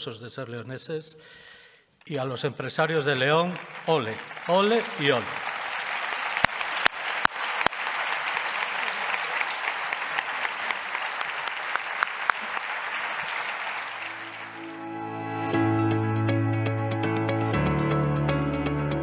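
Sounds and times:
audience applauding: 3.0s - 15.0s
loud close claps: 3.4s - 14.8s.

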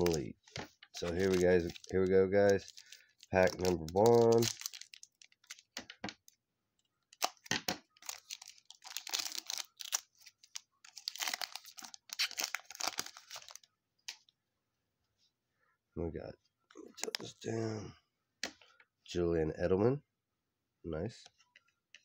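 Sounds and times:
foil wrapper tearing and crinkling: 0.0s - 0.3s, 1.0s - 5.8s, 7.1s - 13.6s.

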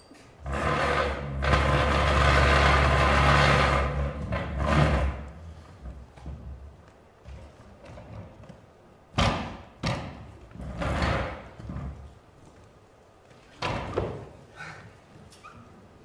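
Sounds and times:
chairs being set down: 13.5s - 14.4s.

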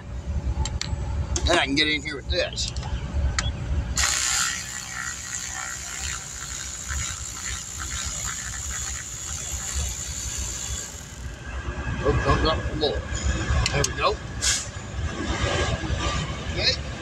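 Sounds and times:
ratchet wrench clicking: 4.0s - 11.4s.

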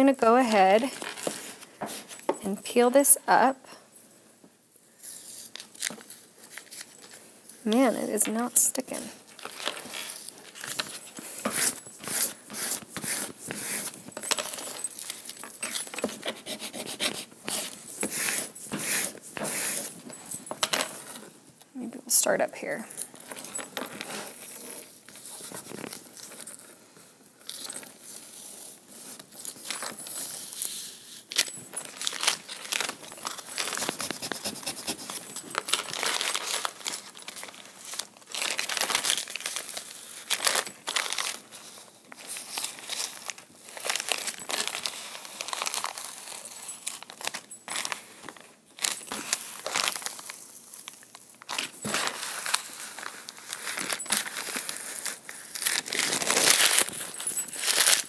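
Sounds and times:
transfer tape crinkling and peeling: 29.2s - 58.0s.

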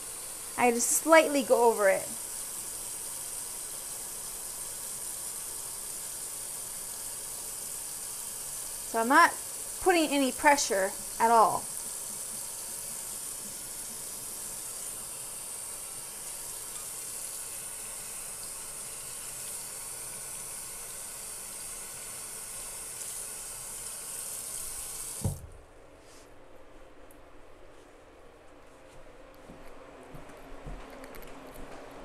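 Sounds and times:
faucet running into sink: 0.0s - 25.4s.

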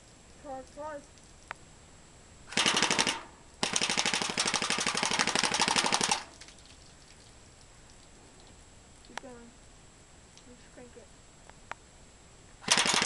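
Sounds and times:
airsoft gun firing full auto: 2.5s - 6.4s, 12.6s - 13.0s.

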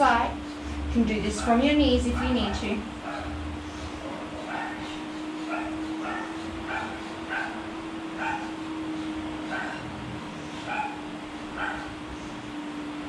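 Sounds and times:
steady low hum: 0.0s - 13.0s
dog yipping: 2.2s - 3.4s, 4.4s - 8.6s, 9.4s - 9.9s, 10.6s - 11.0s, 11.6s - 11.9s.

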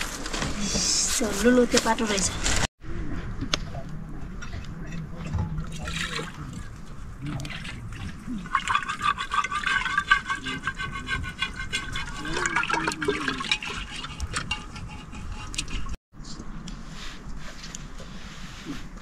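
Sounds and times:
water running: 5.6s - 15.5s.

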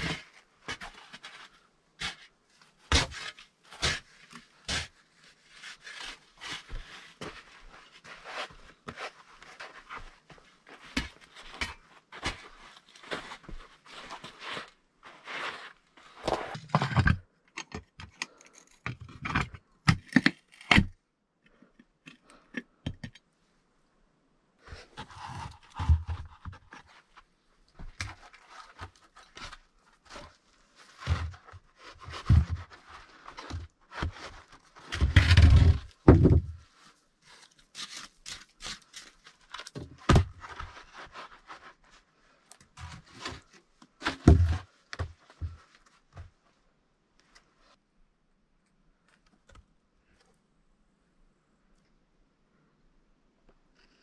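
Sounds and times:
scuffing on sandy earth floor: 6.1s - 16.6s
wooden boards scraping and knocking: 33.4s - 36.6s, 42.8s - 45.6s.

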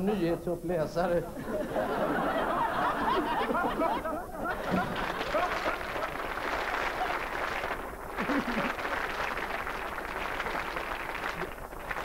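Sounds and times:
audience laughing: 1.3s - 10.0s
audience clapping: 2.0s - 12.0s.

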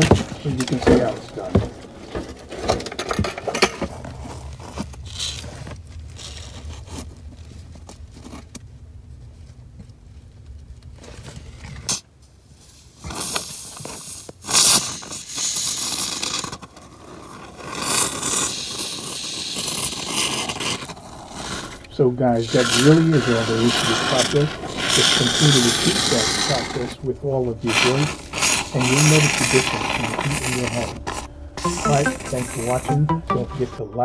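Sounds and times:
handling rubbing and knocks: 0.0s - 4.1s
spray foam hissing from can: 13.1s - 16.5s, 17.7s - 21.7s, 22.4s - 27.0s, 27.7s - 32.9s.

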